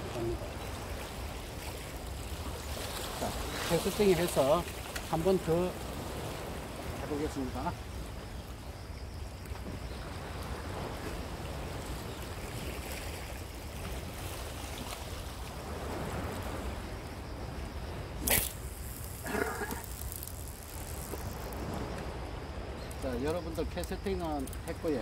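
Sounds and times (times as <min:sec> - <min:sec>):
waves on rocky shore: 0:00.0 - 0:25.0
wind: 0:00.0 - 0:25.0
fishing reel bail snapping shut: 0:18.2 - 0:19.0.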